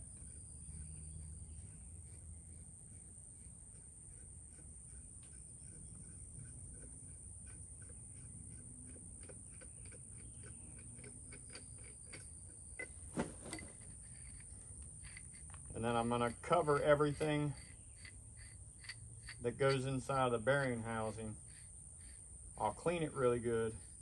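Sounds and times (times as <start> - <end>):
high insect drone: 0.0 - 24.0
ratchet wrench clicking: 16.2 - 21.6.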